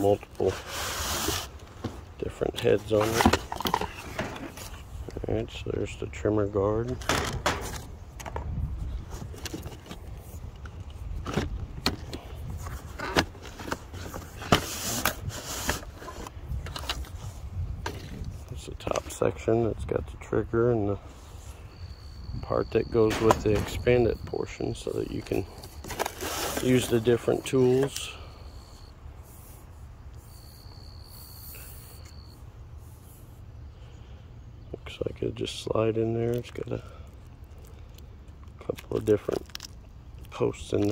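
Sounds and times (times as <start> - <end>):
knocks and scrapes of handling: 0.0 - 5.2, 6.8 - 19.2, 23.0 - 28.2
cardboard rustle: 25.0 - 28.0
insect trilling: 30.2 - 32.4.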